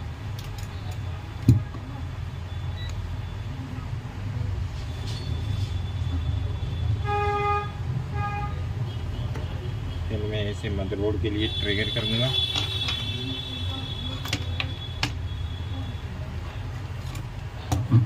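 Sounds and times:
low traffic rumble: 0:00.0 - 0:18.0
vehicle horn: 0:07.0 - 0:09.2, 0:11.4 - 0:15.7.

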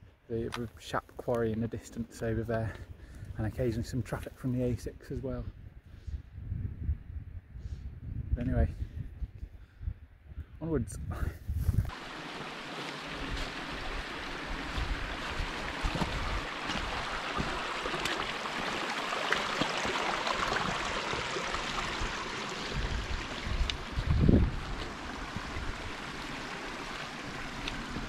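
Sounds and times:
stream water rushing: 0:11.9 - 0:28.0.

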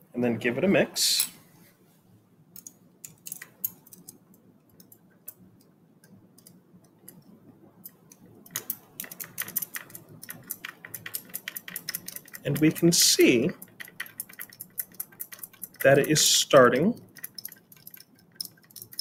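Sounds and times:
stirring rod clinking in test tube: 0:08.5 - 0:19.0.

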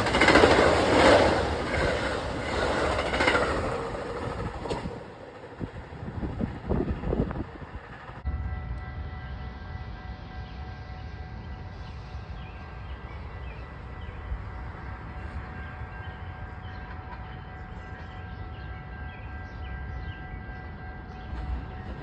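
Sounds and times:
faint steady tones: 0:07.4 - 0:22.0
birds chirping: 0:10.1 - 0:22.0.

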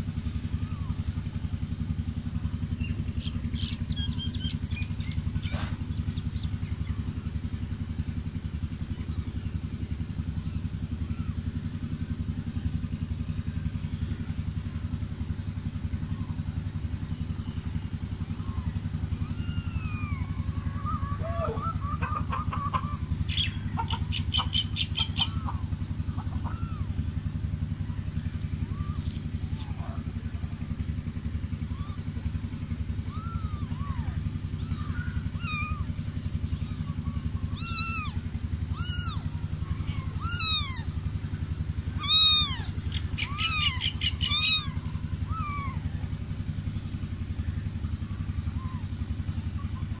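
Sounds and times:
continuous low rumble: 0:00.0 - 0:50.0
kittens mewing: 0:08.7 - 0:12.8, 0:18.1 - 0:50.0.

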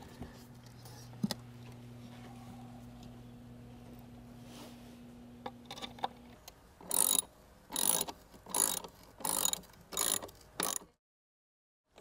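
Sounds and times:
ratchet wrench clicking: 0:06.8 - 0:10.9.

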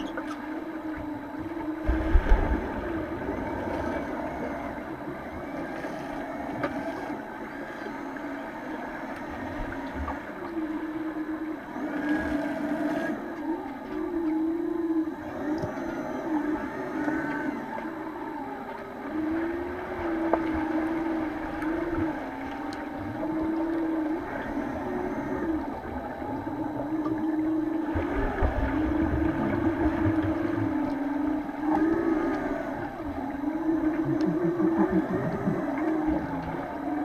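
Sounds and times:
low rumbling water: 0:00.0 - 0:37.0
wavering underwater hum: 0:00.0 - 0:37.0
underwater clicks and knocks: 0:33.8 - 0:36.7.

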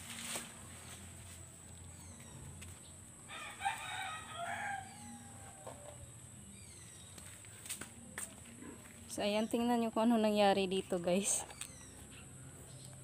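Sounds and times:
rooster crowing: 0:03.3 - 0:06.0.

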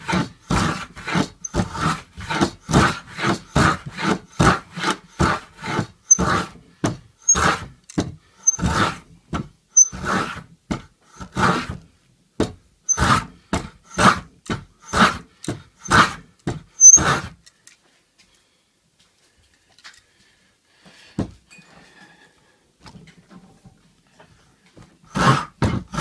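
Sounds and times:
hand tool scraping wood: 0:00.0 - 0:11.9, 0:12.9 - 0:17.5, 0:25.1 - 0:26.0.

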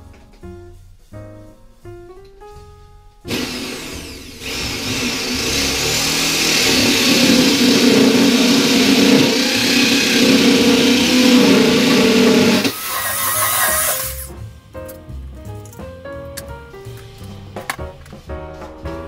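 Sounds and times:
electric drill motor hum: 0:03.3 - 0:14.3
hole saw grinding into wood: 0:03.3 - 0:14.3.

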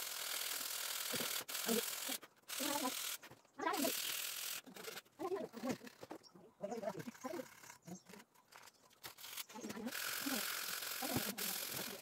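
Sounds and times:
sandpaper scraping wood: 0:00.0 - 0:06.2, 0:09.1 - 0:12.0.

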